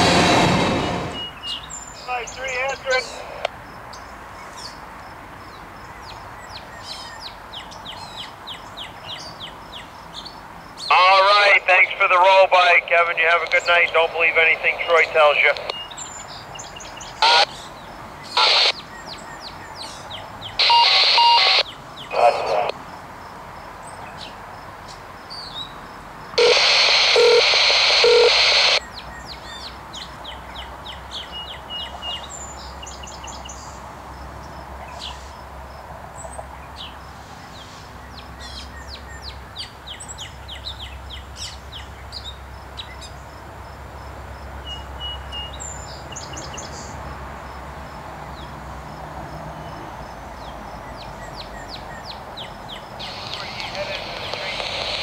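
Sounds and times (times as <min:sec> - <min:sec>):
diesel locomotive rumble: 0:00.0 - 0:01.3
radio static bursts: 0:00.0 - 0:01.3, 0:02.0 - 0:03.5, 0:10.9 - 0:15.7, 0:17.2 - 0:17.5, 0:18.3 - 0:18.8, 0:20.6 - 0:22.8, 0:26.4 - 0:28.8, 0:53.0 - 0:55.0
birds chirping: 0:00.8 - 0:04.8, 0:05.4 - 0:23.0, 0:26.4 - 0:35.5, 0:48.2 - 0:55.0.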